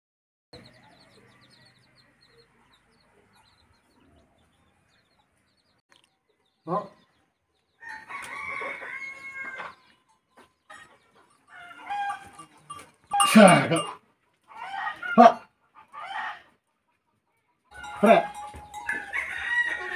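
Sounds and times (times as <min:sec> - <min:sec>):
faint small birds chirping: 0:00.6 - 0:13.1
rooster crowing: 0:07.8 - 0:09.9, 0:11.5 - 0:12.5, 0:17.7 - 0:19.9.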